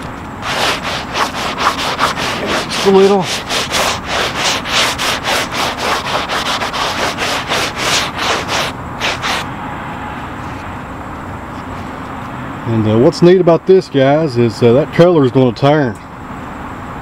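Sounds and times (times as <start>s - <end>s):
hand rubbing wet rough wood: 0.0s - 9.4s.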